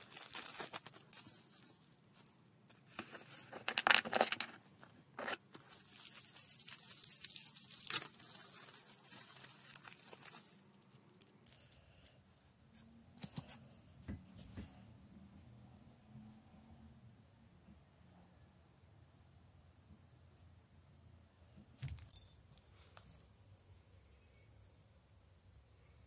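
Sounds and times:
bubble wrap crinkling and tearing: 0.0 - 11.3.

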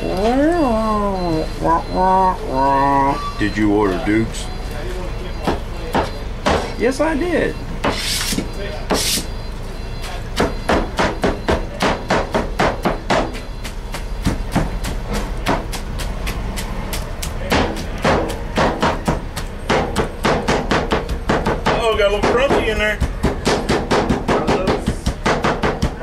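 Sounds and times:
blades chopping on wooden board: 10.4 - 26.0.

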